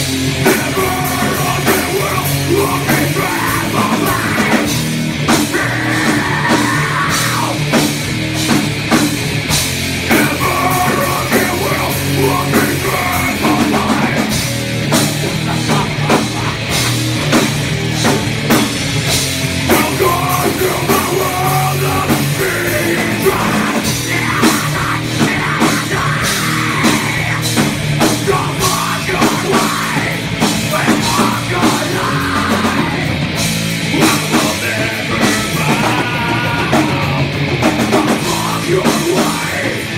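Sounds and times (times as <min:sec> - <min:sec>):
distorted electric guitar: 0:00.0 - 0:39.9
drum kit with cymbal hits: 0:00.0 - 0:39.9.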